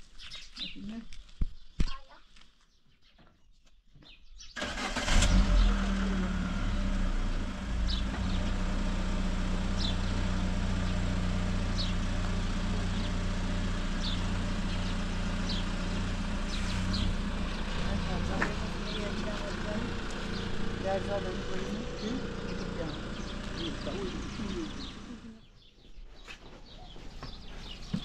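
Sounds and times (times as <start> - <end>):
car engine humming: 4.6 - 25.5.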